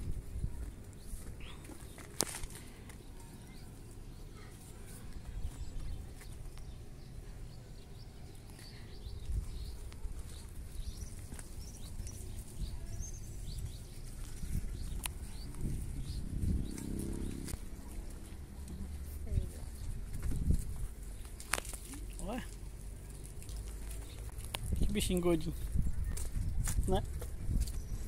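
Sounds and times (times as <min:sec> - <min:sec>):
small birds chirping: 0:00.0 - 0:28.0
low microphone rumble: 0:08.9 - 0:21.2.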